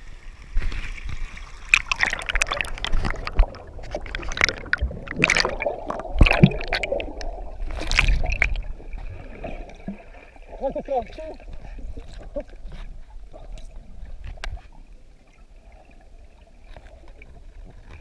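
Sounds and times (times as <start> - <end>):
river water splashing: 0.5 - 11.6
air bubbles gurgling: 1.5 - 10.8.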